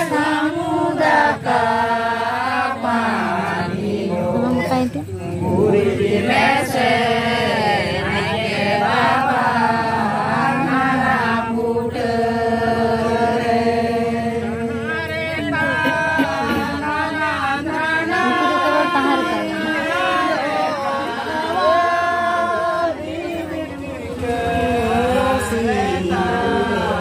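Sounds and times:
group of voices chanting: 5.3s - 27.0s.

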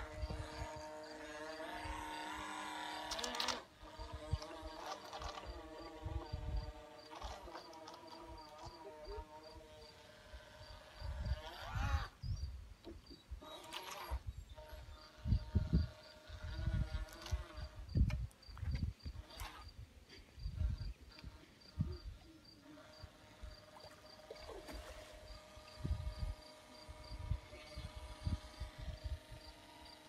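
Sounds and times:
wind gusting on microphone: 0.0s - 2.8s, 3.8s - 7.5s, 10.4s - 12.6s, 14.0s - 22.2s, 24.8s - 30.0s
insect chirping: 3.1s - 19.8s, 20.4s - 30.0s.

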